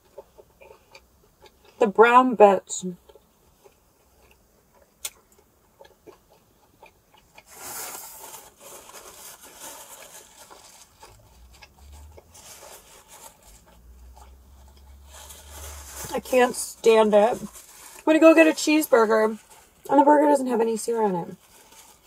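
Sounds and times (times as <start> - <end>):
person chewing: 0.0 - 1.8, 3.0 - 16.2
paper napkin rustling: 7.5 - 13.9, 14.6 - 22.0.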